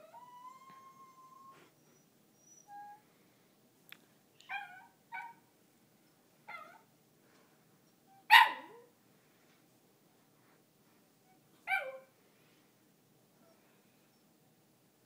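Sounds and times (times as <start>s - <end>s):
small dog whining yips: 0.0s - 3.0s, 4.5s - 5.4s, 11.7s - 12.1s
dog barking: 8.3s - 8.9s.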